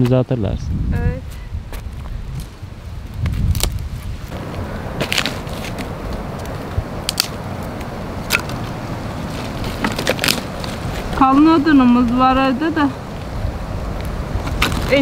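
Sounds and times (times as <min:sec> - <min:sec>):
firewood crunching rustle: 0:01.8 - 0:15.0
thin sticks snapping: 0:03.2 - 0:03.8, 0:05.0 - 0:11.2.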